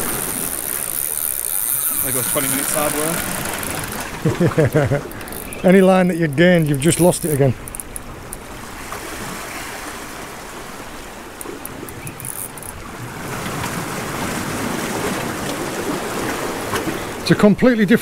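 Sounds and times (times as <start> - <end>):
sea surf washing on shore: 0.0 - 18.0.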